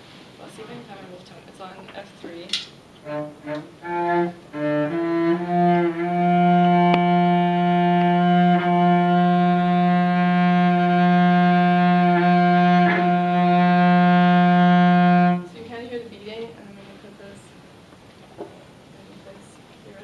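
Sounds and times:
cello bowed: 3.0s - 15.6s.

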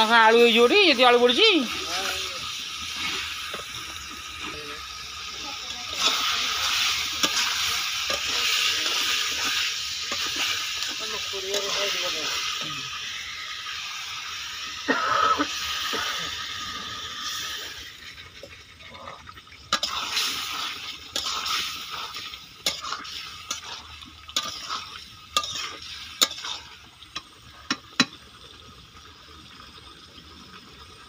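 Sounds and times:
curry hissing: 0.0s - 27.7s
spatula scraping a pan: 6.0s - 12.4s, 19.7s - 26.8s.

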